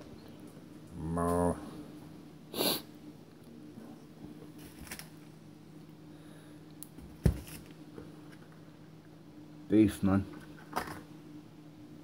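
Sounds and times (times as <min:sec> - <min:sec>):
steady low hum: 0:00.0 - 0:12.0
groceries rustling: 0:04.5 - 0:05.3.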